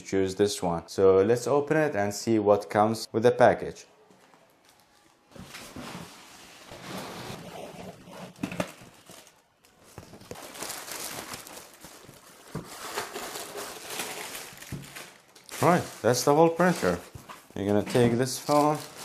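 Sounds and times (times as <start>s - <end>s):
plastic bag and foam rustling: 4.2s - 19.0s
cardboard box scraping and bumping: 5.8s - 8.6s.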